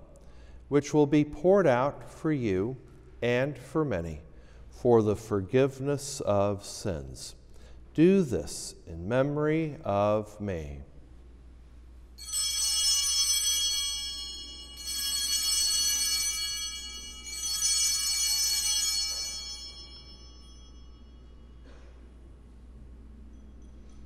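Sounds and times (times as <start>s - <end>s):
altar bells ringing: 12.2s - 22.3s, 23.1s - 24.0s.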